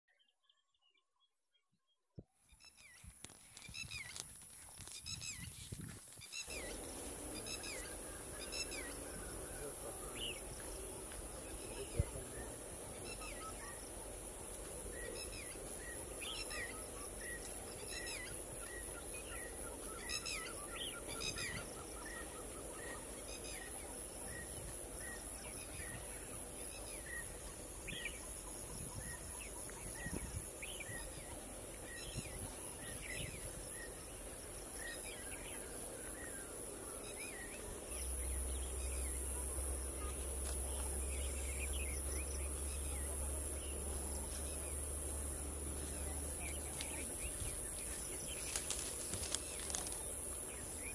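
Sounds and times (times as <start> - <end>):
insect hiss: 2.7 - 50.9
bird chirping: 6.2 - 50.9.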